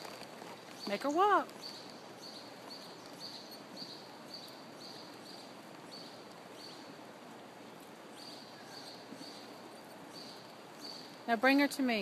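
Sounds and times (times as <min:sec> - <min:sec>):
horse walking on dirt: 0:00.0 - 0:04.6.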